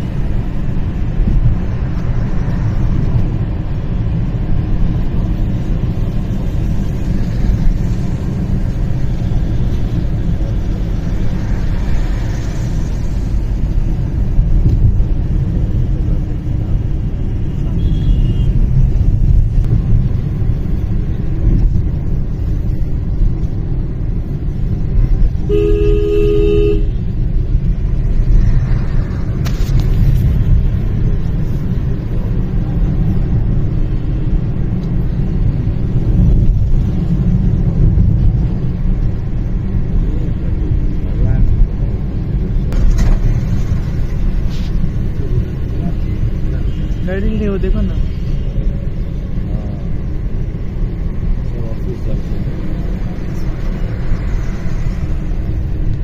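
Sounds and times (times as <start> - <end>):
road and engine rumble in car: 0.0 - 56.0
car horn: 17.6 - 18.7, 25.4 - 27.1.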